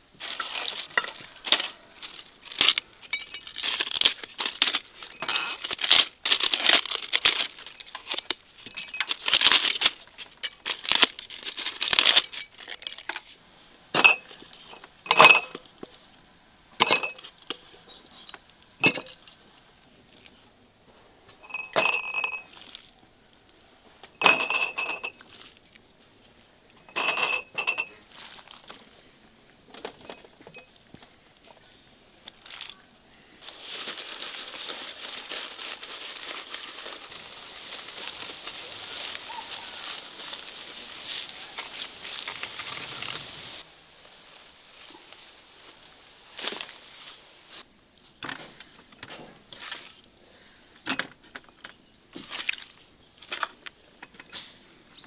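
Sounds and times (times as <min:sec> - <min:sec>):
dry leaves crackling by hand: 0:00.0 - 0:13.4, 0:22.2 - 0:23.7, 0:24.9 - 0:26.5, 0:28.0 - 0:29.1, 0:31.4 - 0:47.7, 0:49.5 - 0:50.6, 0:52.1 - 0:54.0
glass jars clinking: 0:00.3 - 0:09.8, 0:15.1 - 0:15.6, 0:16.8 - 0:17.2, 0:18.8 - 0:19.2, 0:21.4 - 0:22.6, 0:24.2 - 0:25.3, 0:26.8 - 0:28.0.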